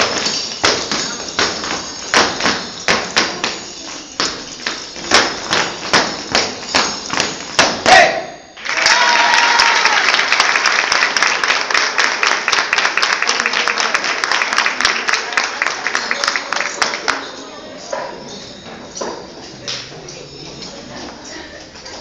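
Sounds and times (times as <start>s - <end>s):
audience applause: 8.6s - 17.1s.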